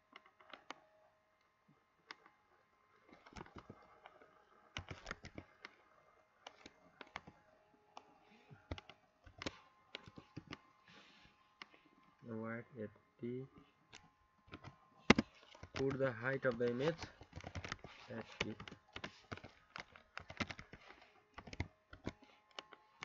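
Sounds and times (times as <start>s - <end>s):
keyboard typing clicks: 4.8s - 5.5s, 13.9s - 22.7s.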